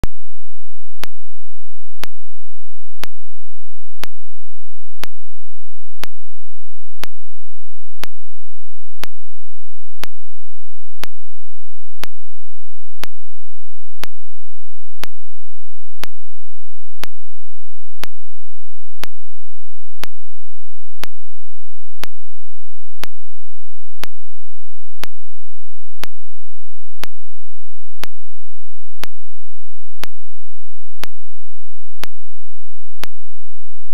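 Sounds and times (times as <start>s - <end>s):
steady low hum: 0.0s - 33.9s
sharp ticks: 1.0s - 1.2s, 2.0s - 2.2s, 3.0s - 3.2s, 4.0s - 4.2s, 5.0s - 5.2s, 6.0s - 6.2s, 7.0s - 7.2s, 8.0s - 8.2s, 9.0s - 9.2s, 10.0s - 10.2s, 11.0s - 11.2s, 12.0s - 12.2s, 13.0s - 13.2s, 14.0s - 14.2s, 15.0s - 15.2s, 16.0s - 16.2s, 17.0s - 17.2s, 18.0s - 18.2s, 19.0s - 19.2s, 20.0s - 20.2s, 21.0s - 21.2s, 22.0s - 22.2s, 23.0s - 23.2s, 24.0s - 24.2s, 25.0s - 25.2s, 26.0s - 26.2s, 27.0s - 27.2s, 28.0s - 28.2s, 29.0s - 29.2s, 30.0s - 30.2s, 31.0s - 31.2s, 32.0s - 32.2s.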